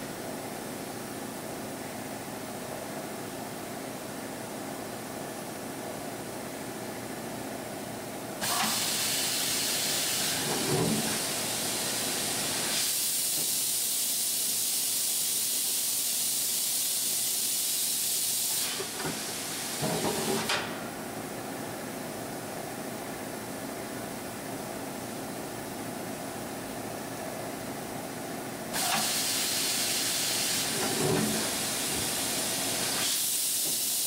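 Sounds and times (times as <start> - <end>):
compressed air hissing: 8.4 - 20.5, 28.7 - 34.0.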